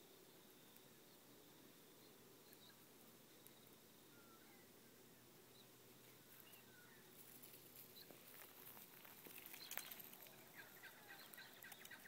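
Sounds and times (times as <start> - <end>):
footsteps on dry pine needles: 7.2 - 11.4.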